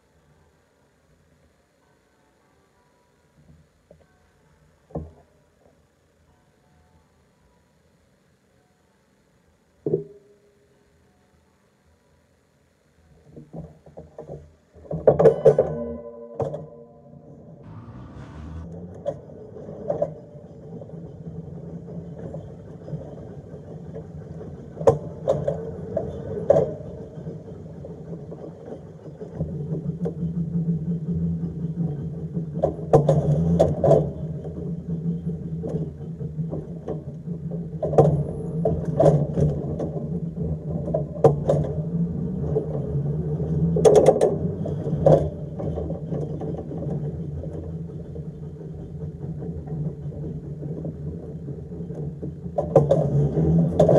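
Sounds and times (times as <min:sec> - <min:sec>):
tram motor hum: 0:17.6 - 0:19.8.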